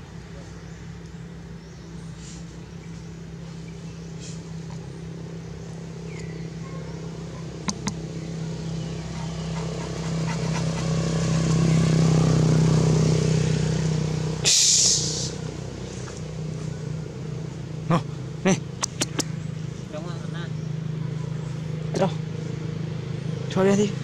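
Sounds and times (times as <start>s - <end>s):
sharp clicks: 7.6s - 8.0s, 18.8s - 19.3s
loud hiss: 14.4s - 15.5s.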